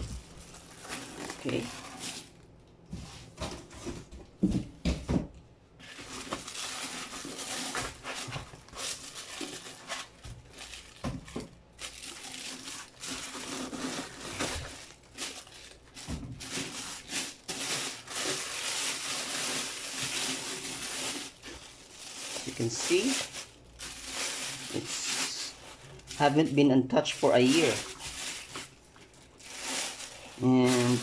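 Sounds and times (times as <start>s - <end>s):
plastic bag crinkling: 0.0s - 2.6s, 5.8s - 31.0s.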